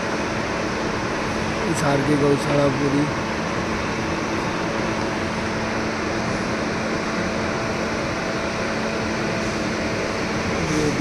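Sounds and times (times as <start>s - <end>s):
steady rushing noise: 0.0s - 11.0s.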